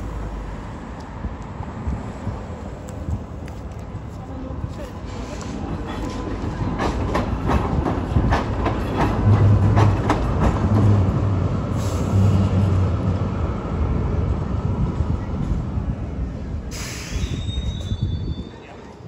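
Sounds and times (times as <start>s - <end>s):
tram rolling noise: 0.0s - 19.0s
tram wheels clicking over rail joints: 5.1s - 13.4s.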